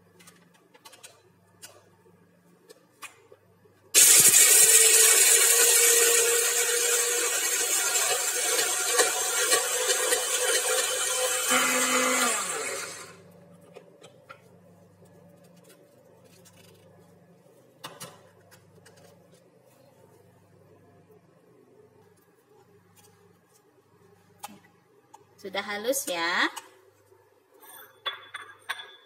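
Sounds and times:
electric blender grinding: 0:04.0 - 0:13.2.

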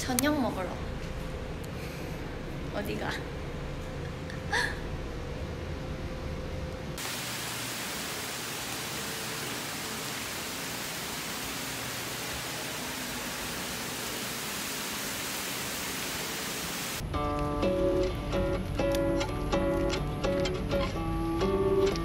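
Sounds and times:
steady hiss: 0:07.0 - 0:17.0.

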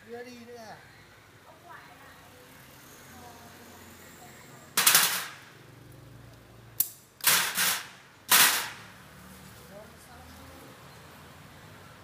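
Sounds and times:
pneumatic impact wrench rattling: 0:04.8 - 0:05.4, 0:06.8 - 0:08.9.

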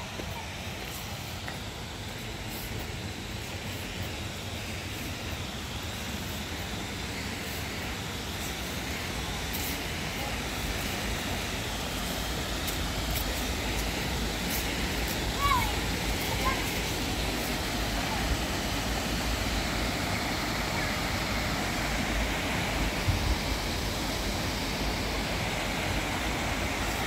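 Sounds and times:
river water rushing over rocks: 0:00.0 - 0:27.0.

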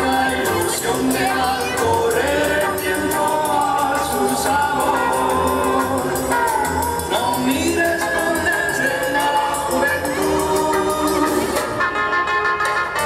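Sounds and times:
person singing over percussive beat: 0:00.0 - 0:11.9.

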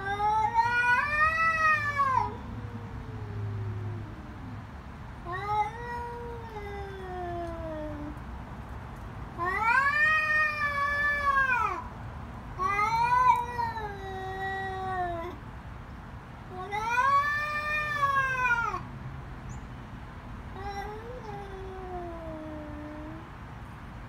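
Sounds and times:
cats yowling: 0:00.0 - 0:08.2, 0:09.4 - 0:11.9, 0:12.6 - 0:15.4, 0:16.5 - 0:18.9, 0:20.6 - 0:23.2.

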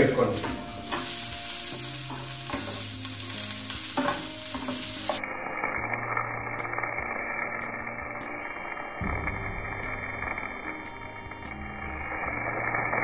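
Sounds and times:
okra sizzling in a pan: 0:00.0 - 0:13.0
wooden spatula scraping a pan: 0:00.1 - 0:05.2.

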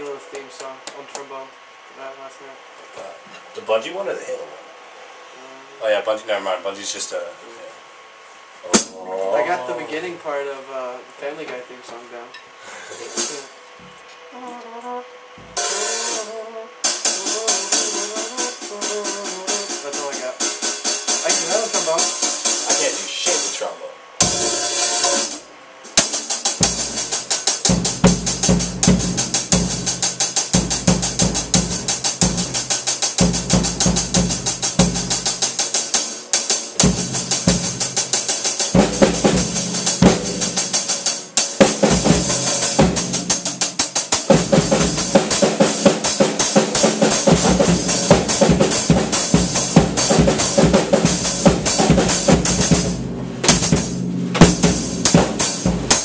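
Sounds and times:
cymbal strokes: 0:15.5 - 0:56.0
snare and bass drum hits: 0:24.2 - 0:25.4, 0:26.0 - 0:35.7, 0:36.7 - 0:56.0.

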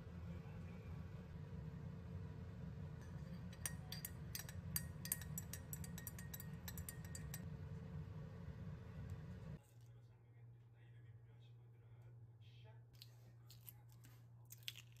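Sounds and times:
steady low hum: 0:00.0 - 0:13.5
spoon clinking against glass mug: 0:03.1 - 0:07.5.

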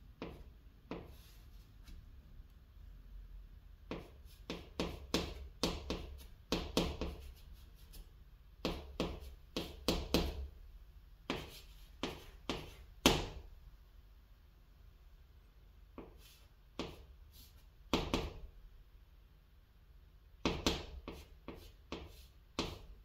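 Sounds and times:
chalk scratching on chalkboard: 0:00.2 - 0:02.0, 0:03.9 - 0:10.4, 0:11.3 - 0:12.9, 0:16.0 - 0:18.2, 0:20.4 - 0:23.0.

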